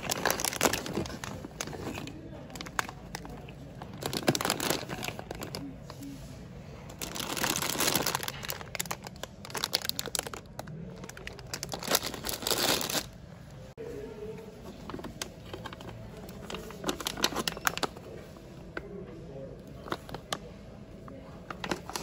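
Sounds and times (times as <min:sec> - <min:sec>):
plastic pouch rustling: 0:00.0 - 0:05.8, 0:06.9 - 0:13.2
plastic pasta bags crinkling: 0:00.0 - 0:05.9, 0:06.9 - 0:13.2, 0:15.0 - 0:18.0, 0:21.5 - 0:22.0.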